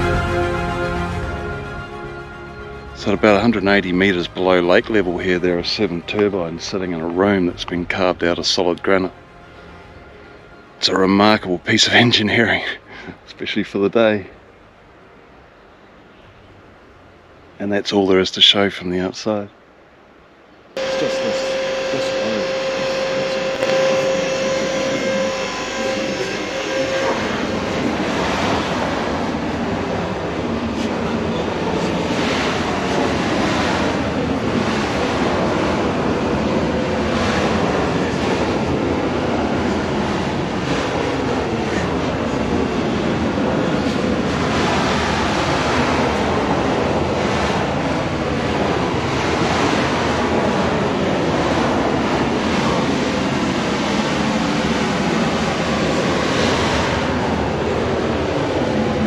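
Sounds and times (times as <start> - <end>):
road and wind noise rushing: 27.2 - 59.0.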